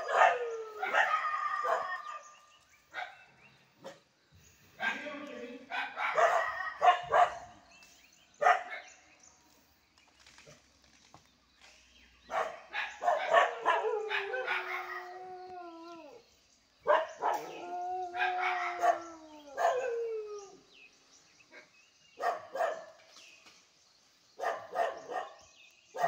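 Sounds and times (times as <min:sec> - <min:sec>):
dog howling: 0:00.0 - 0:02.4, 0:06.1 - 0:07.3, 0:13.0 - 0:16.2, 0:16.9 - 0:20.7
dog barking: 0:05.7 - 0:07.6, 0:08.4 - 0:08.9, 0:12.3 - 0:14.8, 0:16.9 - 0:17.5, 0:21.6 - 0:22.9, 0:24.4 - 0:26.0.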